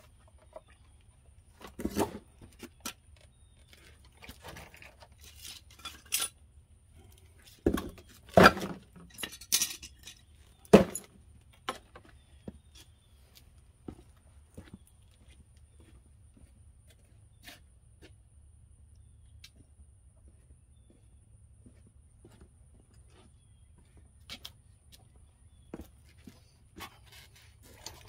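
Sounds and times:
metal tools clinking: 4.5s - 6.4s, 8.2s - 11.1s.

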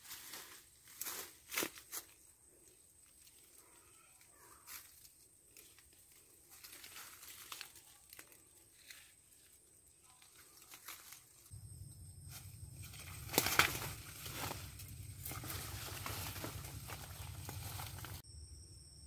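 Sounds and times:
leaves and twigs rustling: 0.0s - 18.2s
small twigs snapping: 5.5s - 9.2s, 12.3s - 18.2s
low rumble: 11.5s - 19.0s.

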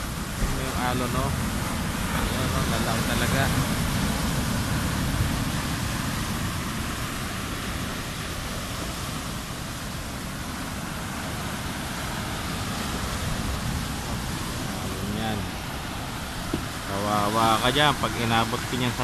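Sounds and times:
waves breaking on beach: 0.0s - 19.0s.

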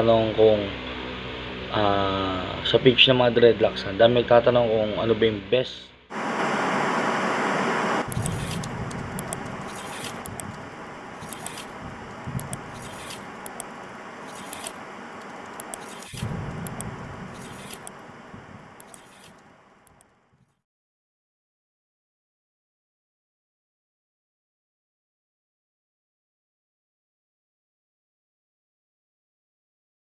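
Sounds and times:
rush of noise: 6.1s - 20.0s
noisy steady texture: 6.1s - 20.4s
low thuds: 16.2s - 17.4s.

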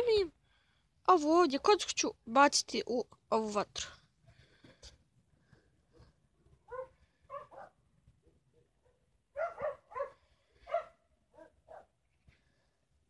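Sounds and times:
dog barking: 6.7s - 7.8s, 8.5s - 12.0s.

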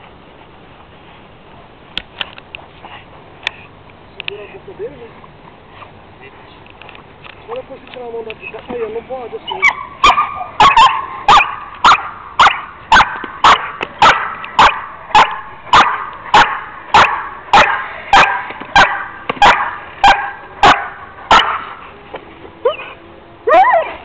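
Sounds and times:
dog barking sharply: 9.6s - 21.7s.

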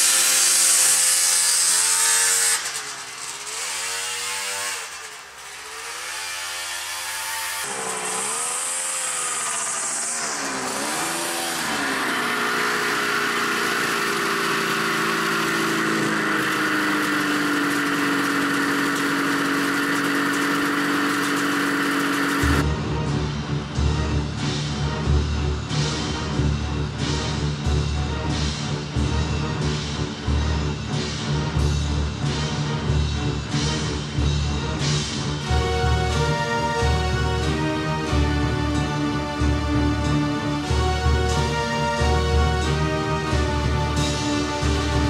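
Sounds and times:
snowmobile engine revving: 0.0s - 22.6s, 34.8s - 45.0s.

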